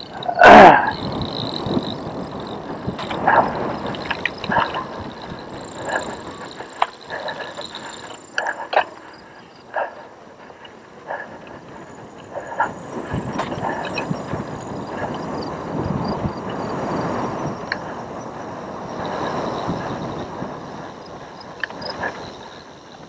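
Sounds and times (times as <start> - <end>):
bike rattling over bumps: 0.0 - 23.0.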